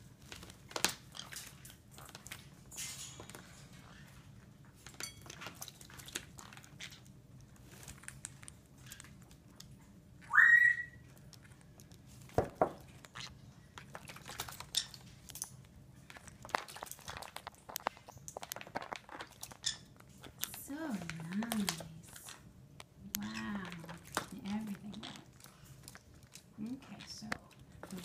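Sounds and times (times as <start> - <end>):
parrot whistle-like call: 10.2 - 11.0.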